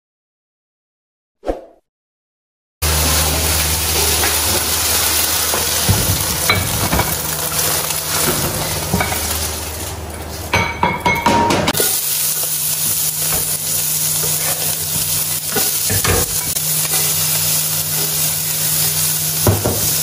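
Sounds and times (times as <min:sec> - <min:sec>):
eggs sizzling in a wok: 0:02.8 - 0:10.6, 0:11.7 - 0:20.0.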